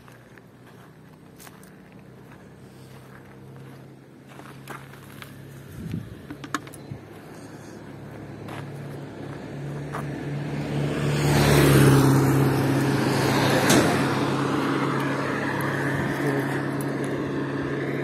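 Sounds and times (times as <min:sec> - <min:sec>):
car passing by: 0:07.1 - 0:18.0.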